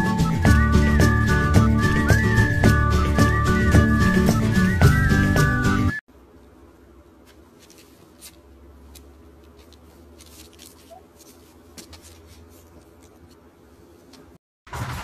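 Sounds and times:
low steady hum: 6.1 - 14.4.

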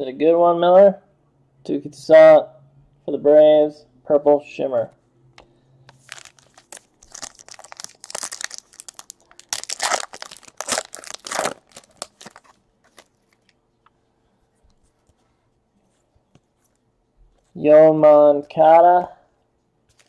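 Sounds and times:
foil wrapper crinkling: 6.0 - 13.6.

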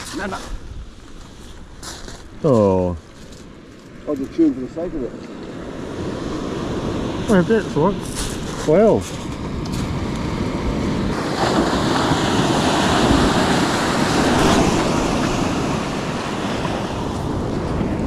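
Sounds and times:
surf breaking on beach: 5.5 - 18.0
wind on microphone: 5.8 - 18.0.

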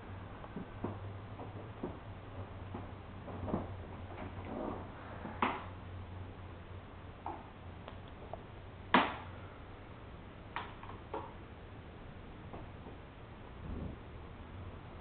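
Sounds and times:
faint low hum: 0.0 - 15.0
light knocks and thumps: 0.5 - 5.7.

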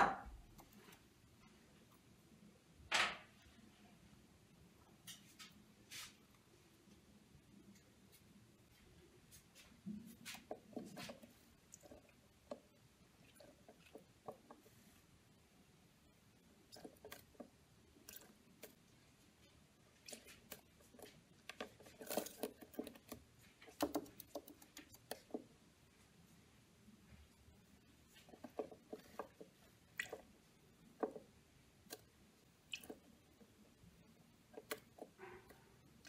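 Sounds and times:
beak and feet tapping plastic: 16.6 - 25.6, 28.0 - 36.0.

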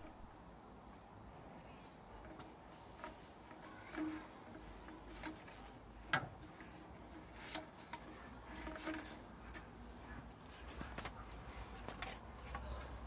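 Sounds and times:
rubber hose clicks and knocks: 2.2 - 9.8.

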